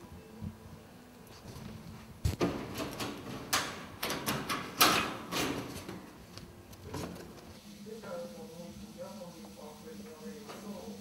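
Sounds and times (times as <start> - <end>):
cage rattling: 2.4 - 6.1.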